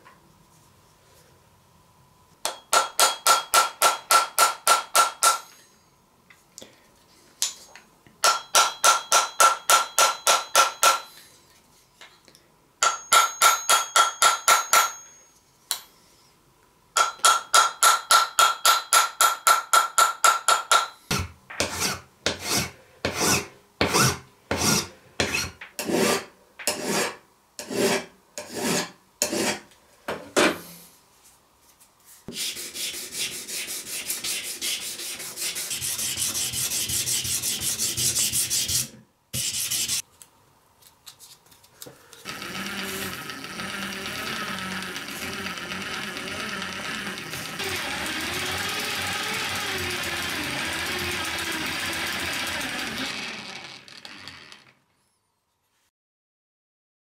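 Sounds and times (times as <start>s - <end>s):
hammer tapping on metal: 2.4s - 5.5s, 8.2s - 11.1s, 12.8s - 15.9s, 17.0s - 21.7s
rubbing strokes on knife: 32.0s - 40.0s.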